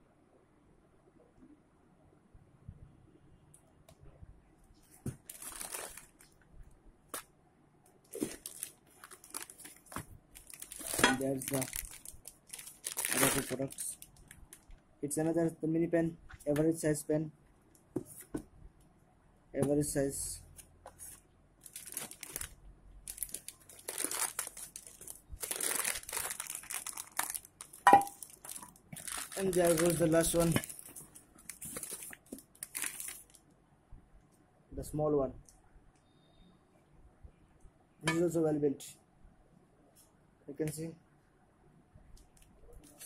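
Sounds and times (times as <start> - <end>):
cardboard and plastic wrap rustling: 4.8 - 6.3, 8.1 - 14.6, 20.9 - 33.4.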